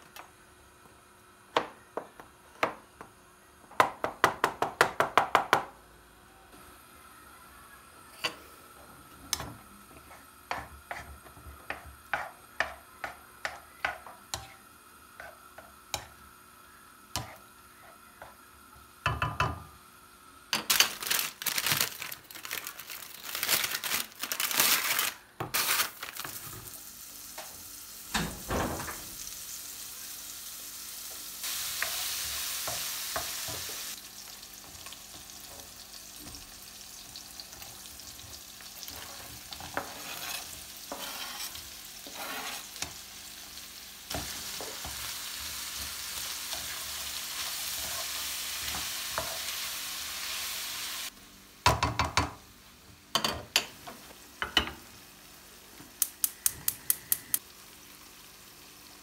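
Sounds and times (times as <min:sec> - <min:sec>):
food sizzling in frying pan: 0:24.4 - 0:51.2, 0:56.9 - 0:59.0.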